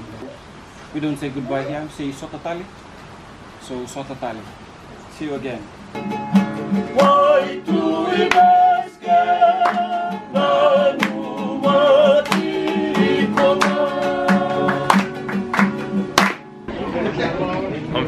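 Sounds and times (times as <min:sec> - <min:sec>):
strummed guitar: 0:05.9 - 0:16.8
group singing in harmony: 0:06.5 - 0:16.4.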